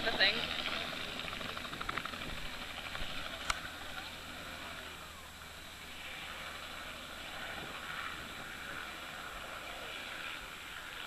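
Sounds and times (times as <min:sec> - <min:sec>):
distant helicopter rotor: 0:00.0 - 0:11.0.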